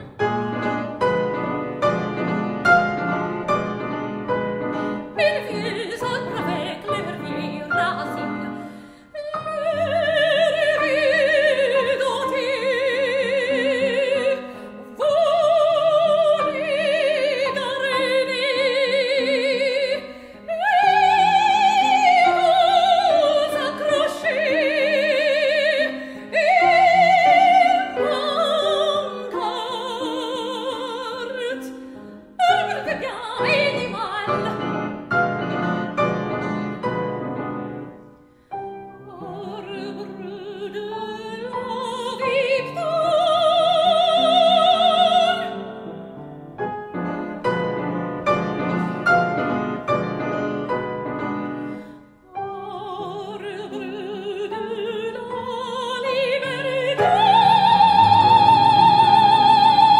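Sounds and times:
piano accompaniment: 0.0 - 59.9
operatic soprano singing: 5.0 - 35.1, 38.9 - 45.9, 52.3 - 59.9.

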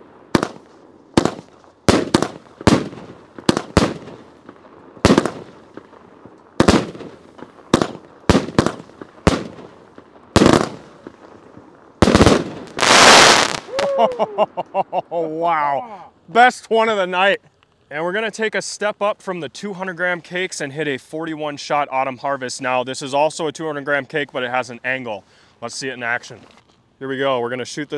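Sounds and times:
firework bangs: 0.0 - 14.6.

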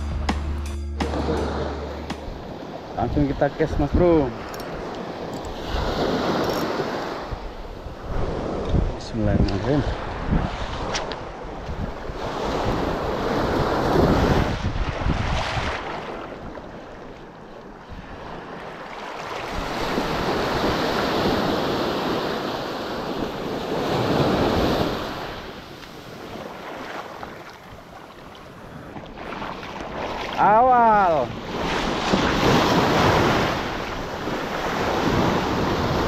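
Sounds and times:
sea waves surging: 0.0 - 36.0
wind buffeting microphone: 1.3 - 16.8.

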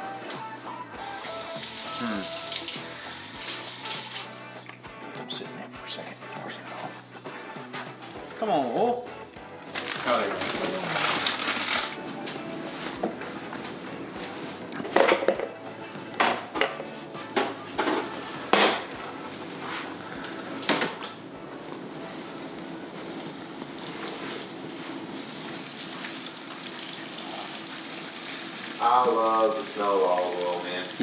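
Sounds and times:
oil sizzling in a frying pan: 1.0 - 4.3, 22.8 - 31.0
person speaking: 1.9 - 2.4, 5.1 - 7.2, 9.9 - 11.6.

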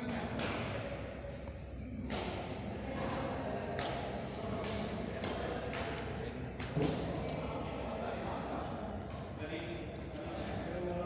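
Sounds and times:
rackets hitting shuttlecock: 0.0 - 7.2.

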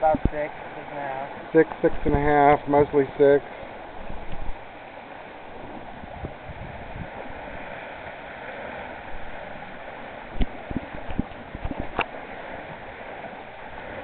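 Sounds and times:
water rushing along a hull: 0.0 - 14.0.

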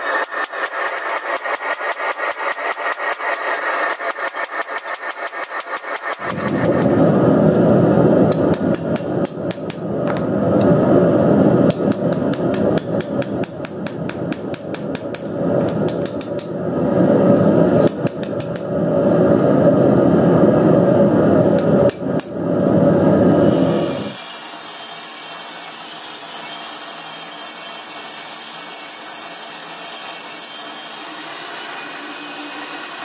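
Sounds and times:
steady low rumble: 6.2 - 24.2.

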